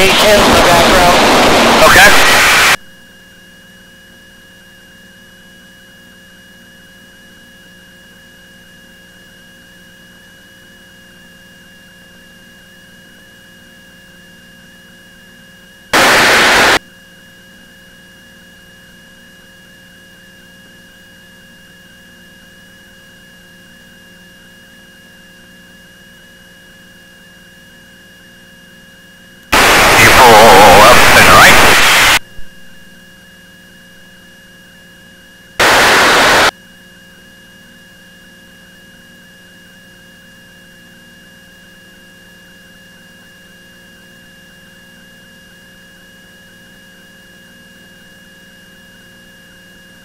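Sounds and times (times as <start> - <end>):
burst of radio static: 0.0 - 2.8, 16.0 - 16.8, 29.5 - 32.5, 35.6 - 36.5
radio feed electrical hum and hiss: 0.0 - 2.9, 16.0 - 16.8, 29.5 - 32.8, 35.6 - 36.5.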